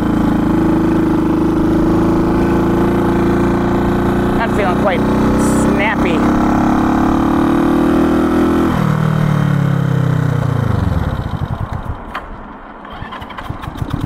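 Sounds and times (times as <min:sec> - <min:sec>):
motorcycle engine running: 0:00.0 - 0:14.0
engine pops and knocks cranking: 0:11.3 - 0:14.0.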